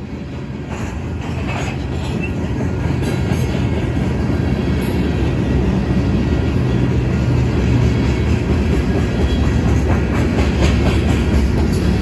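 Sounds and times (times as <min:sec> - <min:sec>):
freight train wheels rumbling on rails: 0:00.0 - 0:12.0.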